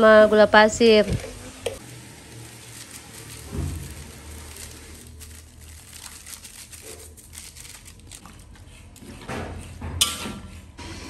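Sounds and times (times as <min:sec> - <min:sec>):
vegetables sizzling in a wok: 0:00.0 - 0:07.8.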